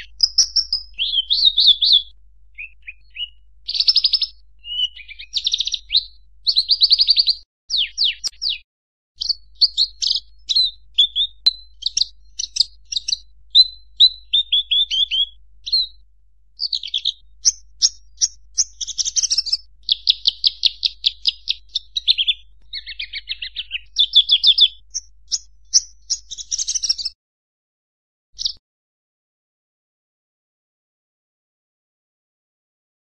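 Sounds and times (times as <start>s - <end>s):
bird singing chirps and trills: 0.0s - 8.6s, 9.2s - 16.0s, 16.6s - 27.2s, 28.4s - 28.6s.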